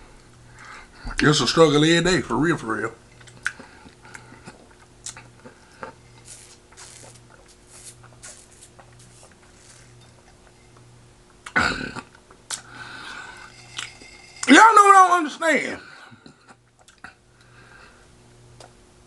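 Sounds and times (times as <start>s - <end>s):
person chewing: 3.2s - 10.8s, 16.7s - 17.2s.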